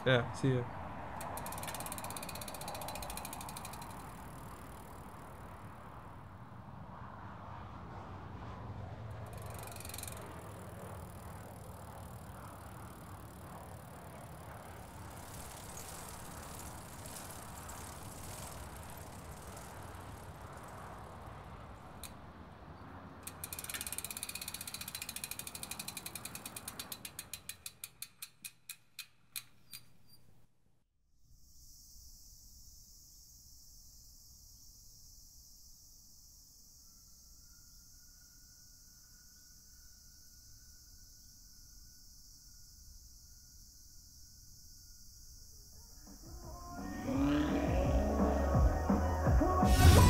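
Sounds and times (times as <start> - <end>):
street background hiss: 0.0 - 29.7, 31.3 - 50.0
bicycle freewheel ticking: 1.1 - 6.3, 9.1 - 22.3, 23.2 - 29.9, 46.1 - 49.9.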